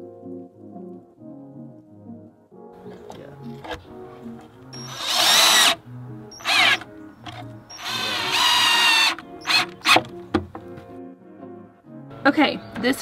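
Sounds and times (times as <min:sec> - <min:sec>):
drill driving screws into wood: 0:04.8 - 0:10.0.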